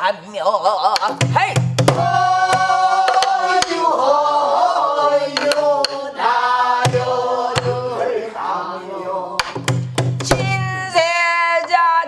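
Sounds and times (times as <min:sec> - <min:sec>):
stick strokes on drum: 0:02.5 - 0:03.8, 0:05.3 - 0:06.0
woman singing with bending notes: 0:10.2 - 0:12.0.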